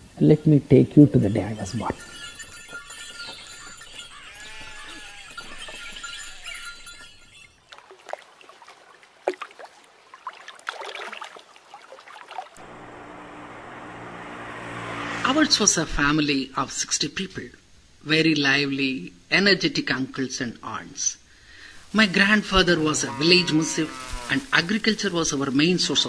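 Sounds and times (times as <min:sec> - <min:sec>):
bird calls: 0:01.3 - 0:07.6.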